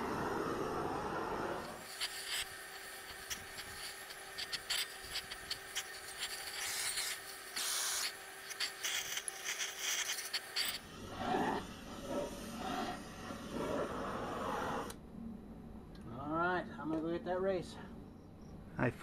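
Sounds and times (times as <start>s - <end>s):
torch flame hissing and crackling: 0.0s - 15.0s.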